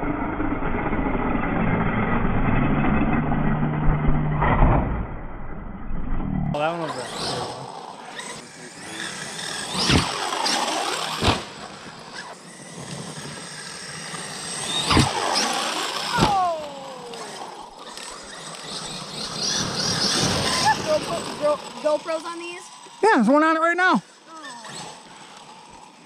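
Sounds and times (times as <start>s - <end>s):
electric motor whining: 6.0s - 26.0s
sharp thuds of landing: 11.2s - 11.5s, 14.9s - 15.2s.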